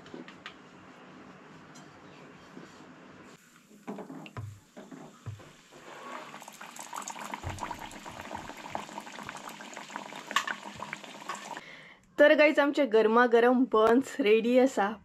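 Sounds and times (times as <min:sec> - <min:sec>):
dough frying in sizzling oil: 0:03.4 - 0:11.6.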